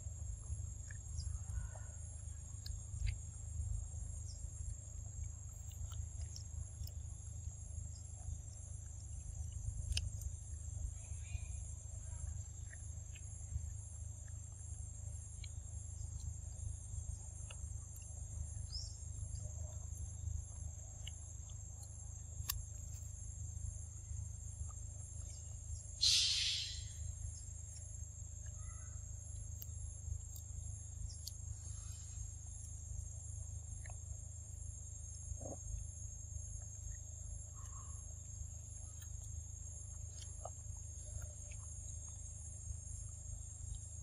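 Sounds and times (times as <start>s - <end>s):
high insect drone: 0.0s - 44.0s
harsh hissing burst: 26.0s - 27.0s
faint short chirps: 26.0s - 27.1s.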